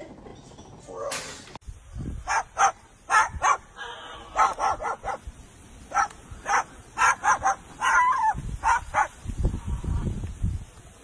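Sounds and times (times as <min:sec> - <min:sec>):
cockatoo imitating dog barks: 0:05.9 - 0:09.1.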